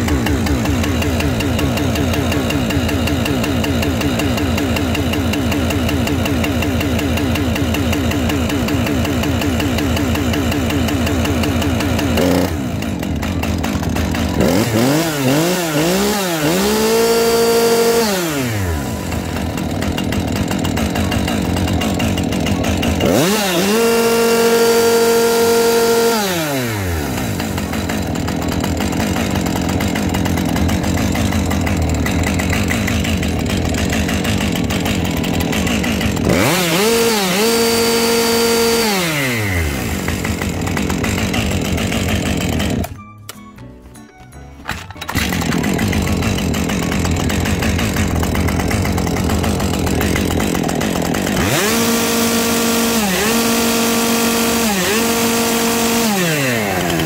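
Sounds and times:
chainsaw idling and revving: 0:00.0 - 0:43.0, 0:44.7 - 0:57.0.

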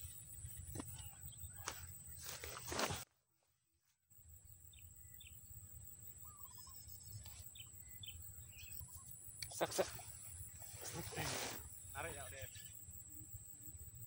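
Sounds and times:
rustling: 0:01.6 - 0:03.1, 0:09.8 - 0:11.7
bird chirps: 0:04.6 - 0:13.8.

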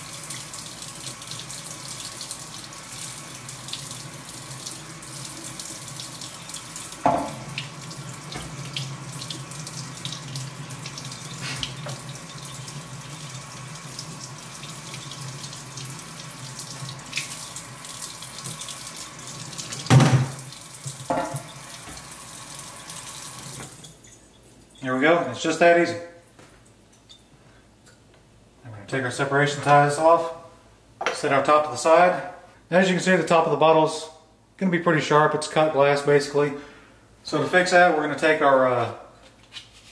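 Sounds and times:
faucet running water: 0:00.0 - 0:25.8.

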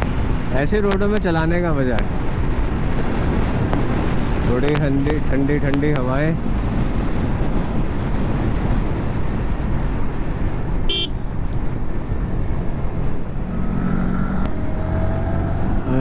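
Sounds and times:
wind rush on microphone: 0:00.0 - 0:16.0
motorcycle horn toot: 0:10.9 - 0:11.2.

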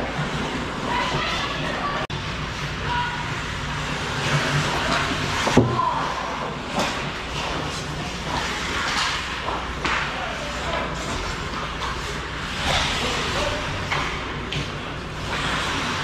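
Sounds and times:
skate blades scraping on ice: 0:03.4 - 0:16.0
hockey sticks on ice: 0:04.0 - 0:16.0.

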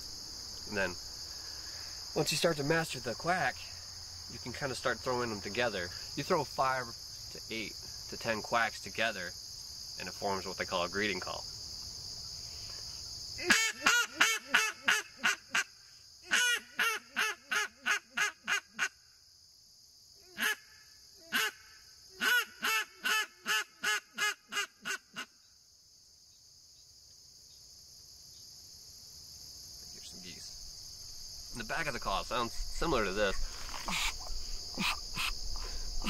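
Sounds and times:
insects buzzing: 0:00.0 - 0:36.0
duck call quacks: 0:13.4 - 0:15.7, 0:16.3 - 0:19.0, 0:20.4 - 0:25.4, 0:33.7 - 0:35.4.

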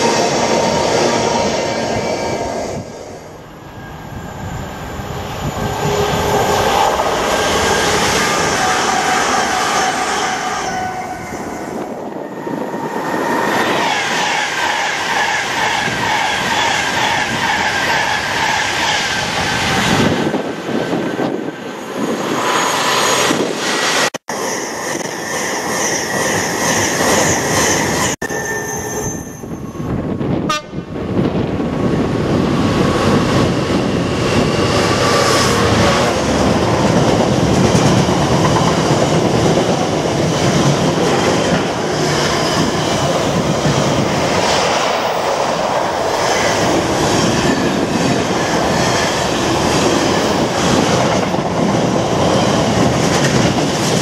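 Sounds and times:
electric train rushing past: 0:00.0 - 0:54.0
freight train rumbling by: 0:00.0 - 0:54.0
wheels clattering on rails: 0:35.0 - 0:54.0.

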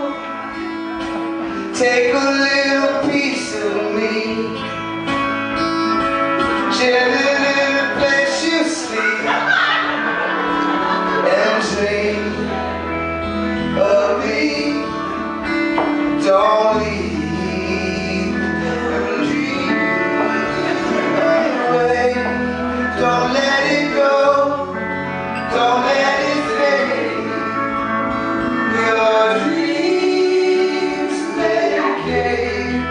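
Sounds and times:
bass notes: 0:00.0 - 0:32.9
electric guitar: 0:00.0 - 0:32.9
strummed acoustic guitar: 0:00.0 - 0:32.9
men singing together: 0:06.7 - 0:12.5, 0:15.9 - 0:24.8, 0:25.4 - 0:27.8, 0:28.5 - 0:32.9.

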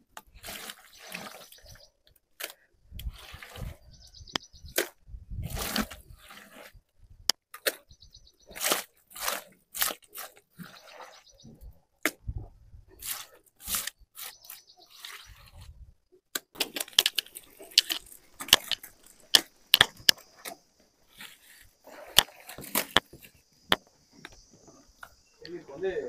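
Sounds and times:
sheep crunching feed: 0:16.6 - 0:23.3.

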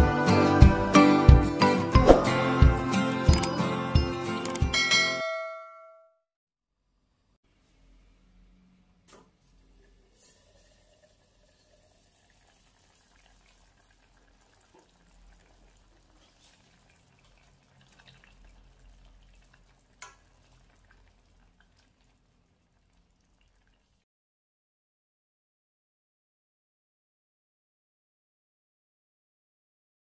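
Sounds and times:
broth bubbling in a pot: 0:09.8 - 0:24.0.

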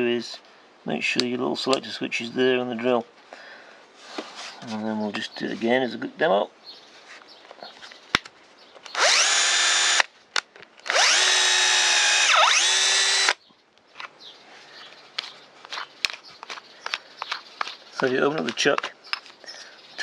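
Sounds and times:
cordless drill drilling into wood: 0:08.9 - 0:10.1, 0:10.9 - 0:13.4.

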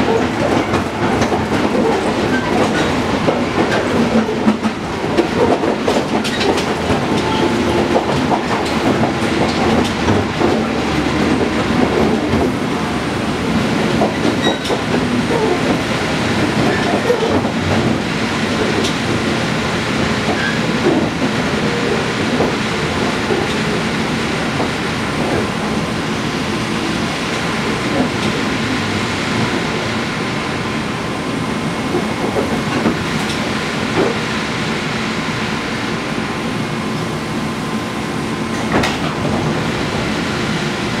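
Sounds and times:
train rumbling: 0:00.0 - 0:41.0.

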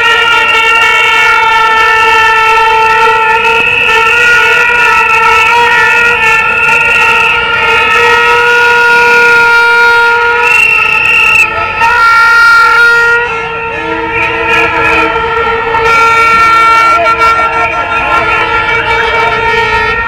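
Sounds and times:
plastic toy horns honking: 0:00.0 - 0:20.0.

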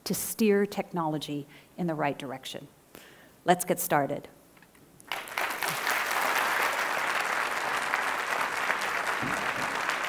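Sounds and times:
audience applauding: 0:05.1 - 0:10.0.

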